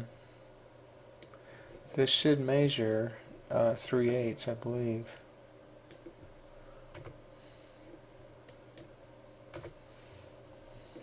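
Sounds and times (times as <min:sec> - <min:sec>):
low steady hum: 0:00.0 - 0:11.0
computer mouse clicks: 0:05.9 - 0:06.2, 0:06.9 - 0:07.2, 0:08.4 - 0:09.8.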